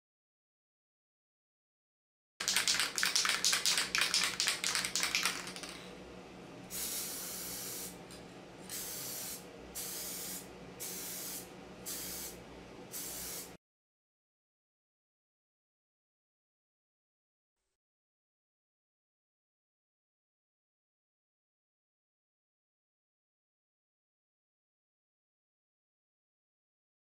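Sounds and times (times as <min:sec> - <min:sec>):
spray paint can hissing: 0:02.4 - 0:05.8, 0:06.7 - 0:08.0, 0:08.7 - 0:13.6
spray can rattling when shaken: 0:02.4 - 0:05.9.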